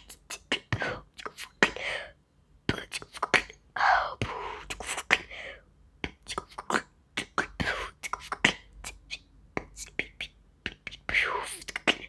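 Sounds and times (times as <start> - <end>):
beatboxing: 0.0 - 1.8, 4.2 - 5.3, 6.0 - 12.0.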